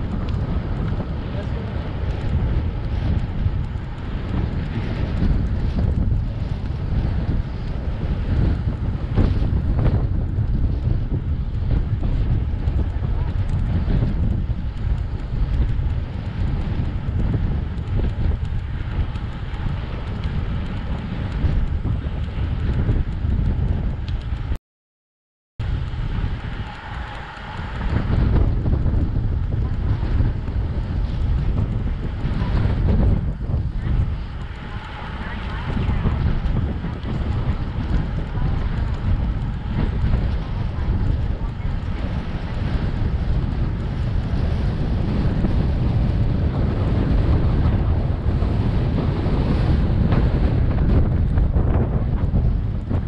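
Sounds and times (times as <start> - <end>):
wind buffeting microphone: 0.0 - 24.6, 25.6 - 53.0.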